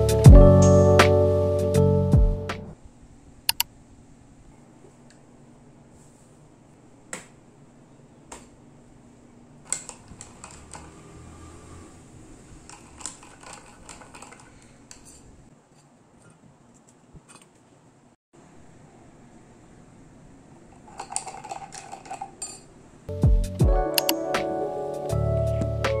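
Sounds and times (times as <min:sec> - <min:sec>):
straw clinking in tumbler: 0:12.6 - 0:15.3, 0:20.8 - 0:22.7.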